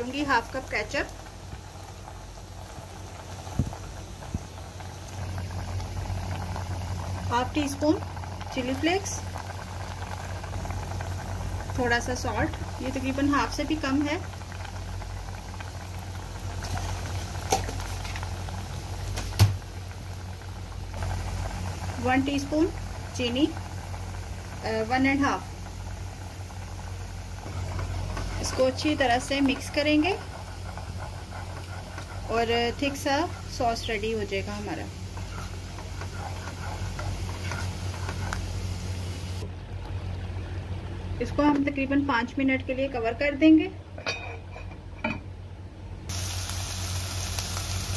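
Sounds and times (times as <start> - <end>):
sauce bubbling in a pot: 0.0 - 41.1, 46.1 - 47.9
low stove hum: 0.0 - 47.9
spoon stirring thick sauce: 35.2 - 38.5.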